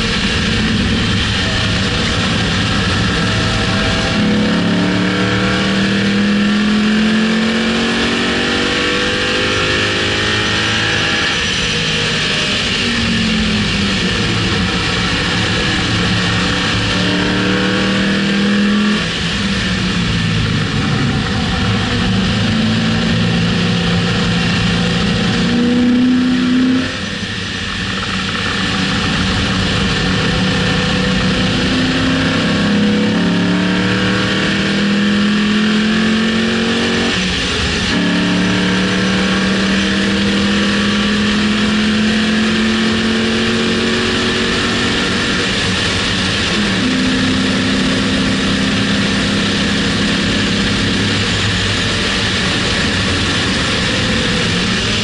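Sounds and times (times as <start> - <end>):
car engine pulling hard: 0.0 - 55.0
wind and road noise: 0.0 - 55.0.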